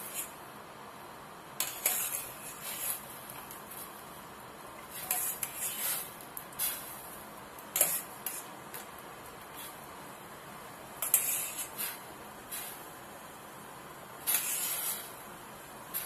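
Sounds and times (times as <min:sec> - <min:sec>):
steady hiss: 0:00.0 - 0:16.0
knife scraping a ceramic plate: 0:01.6 - 0:03.0, 0:04.9 - 0:06.8, 0:07.8 - 0:08.5, 0:11.0 - 0:12.0, 0:14.3 - 0:15.1.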